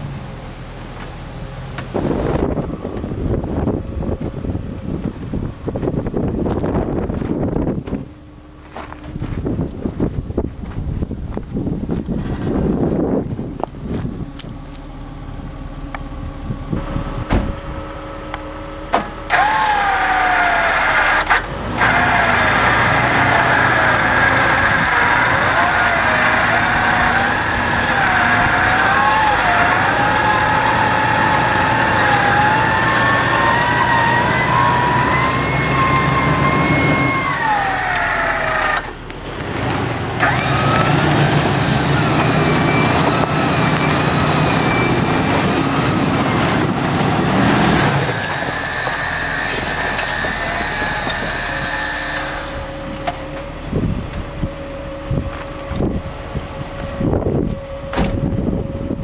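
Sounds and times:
low steady hum: 0:00.0 - 0:19.4
electric winch motor whining: 0:16.8 - 0:59.0.

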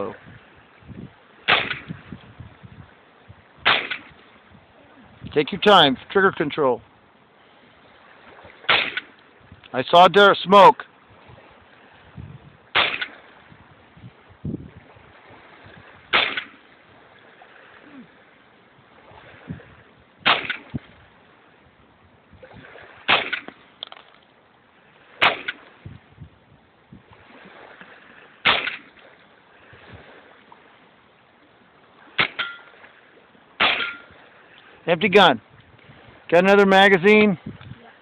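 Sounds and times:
suppressed rifle shots: 0:01.5 - 0:02.0, 0:03.6 - 0:04.2, 0:08.7 - 0:09.2, 0:12.8 - 0:13.2, 0:16.1 - 0:16.6, 0:20.2 - 0:20.7, 0:23.1 - 0:23.6, 0:25.2 - 0:25.6, 0:28.4 - 0:28.9, 0:32.2 - 0:32.6, 0:33.6 - 0:34.1.

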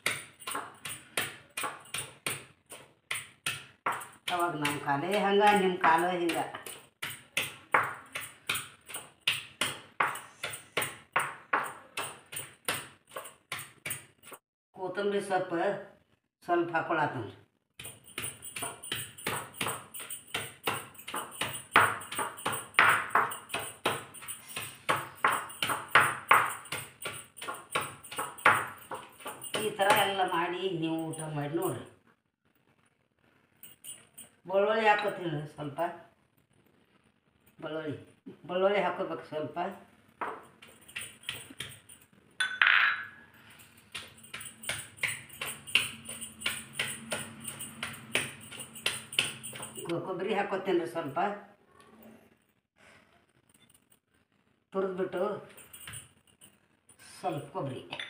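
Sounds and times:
stone pestle pounding in mortar: 0:00.0 - 0:14.2, 0:17.8 - 0:30.2, 0:43.9 - 0:49.9.

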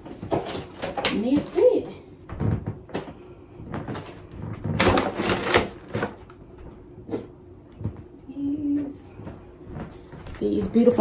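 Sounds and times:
clattering and rustling: 0:00.0 - 0:01.5.

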